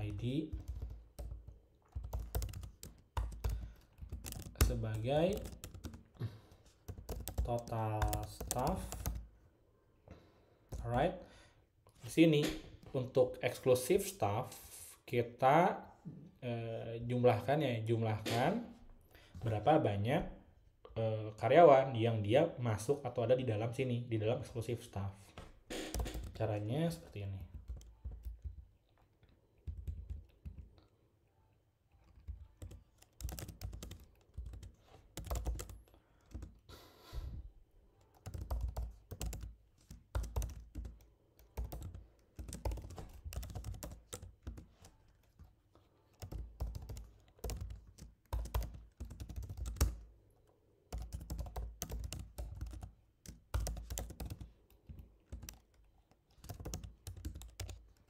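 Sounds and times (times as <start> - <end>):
typing on computer keyboard: 0.0 - 6.2, 6.8 - 9.3, 25.9 - 26.4, 27.4 - 29.0, 29.6 - 30.9, 32.0 - 36.7, 38.0 - 50.1, 50.9 - 58.0.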